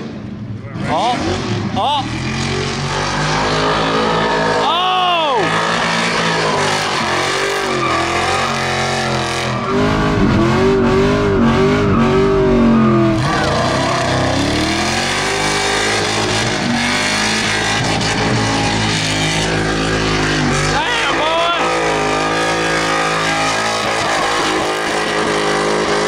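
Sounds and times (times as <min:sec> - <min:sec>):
car engine revving hard: 0:00.7 - 0:26.0
tyres squealing: 0:03.4 - 0:26.0.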